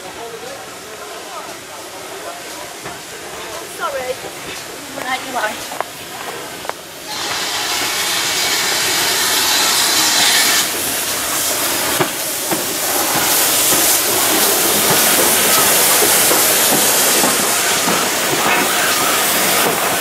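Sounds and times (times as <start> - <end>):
steam hissing: 0.0 - 20.0.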